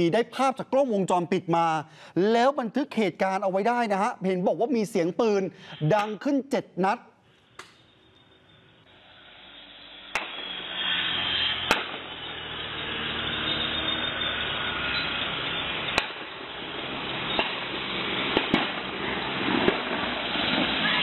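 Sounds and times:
gunshots: 0:10.1 - 0:10.5, 0:11.6 - 0:12.1, 0:16.0 - 0:16.3, 0:17.3 - 0:21.0.

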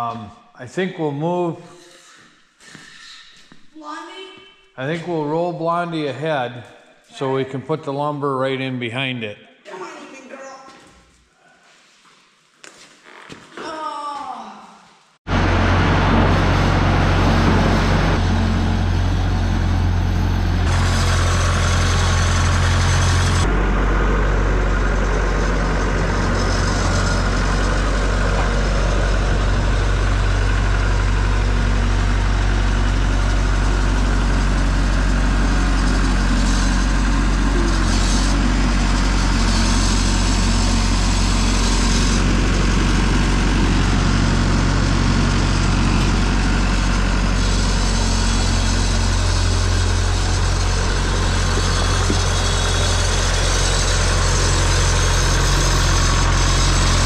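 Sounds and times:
skid-steer loader engine running: 0:15.3 - 0:57.0.

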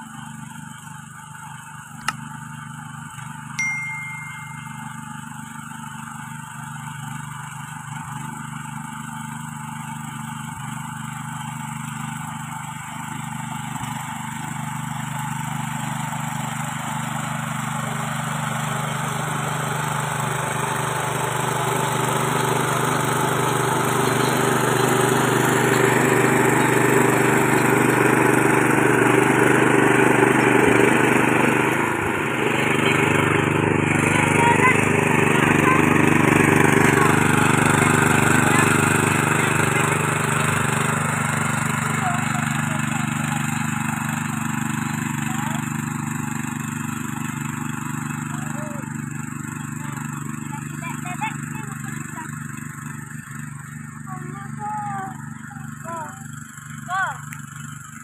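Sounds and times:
cultivator engine running: 0:00.0 - 0:58.0.

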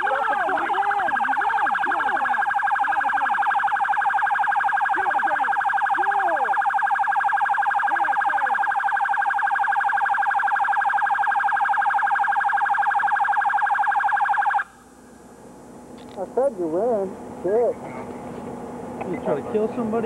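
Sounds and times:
police siren warbling: 0:00.0 - 0:14.7.

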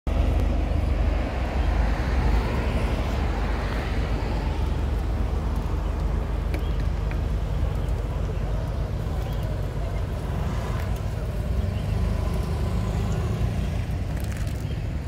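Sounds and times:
road traffic rumble: 0:00.0 - 0:15.0
vehicle passing: 0:07.4 - 0:15.0.

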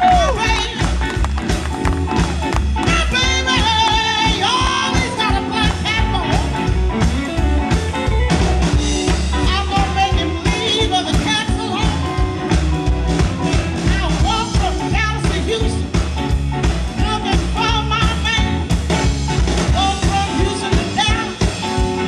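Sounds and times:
woman singing: 0:00.0 - 0:00.9, 0:02.8 - 0:06.7, 0:09.4 - 0:12.2, 0:13.8 - 0:16.0, 0:17.0 - 0:18.6, 0:19.7 - 0:21.8
electric bass: 0:00.0 - 0:22.0
electric guitar: 0:00.0 - 0:22.0
steady drum beat: 0:00.0 - 0:22.0.

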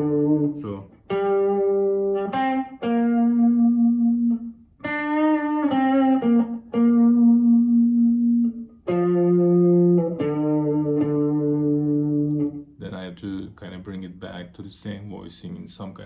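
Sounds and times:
electric guitar melody: 0:00.0 - 0:12.8.

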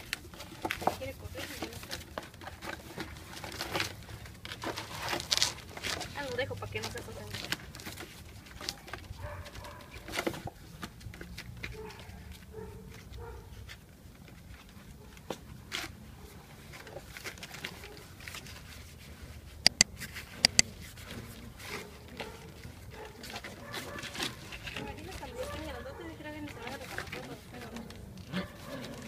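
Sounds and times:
puppies growling and scuffling: 0:00.0 - 0:29.0.

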